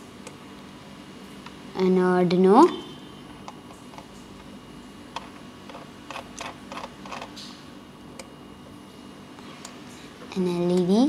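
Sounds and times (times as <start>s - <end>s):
low steady hum: 0.0s - 11.0s
computer mouse clicks: 5.2s - 7.5s.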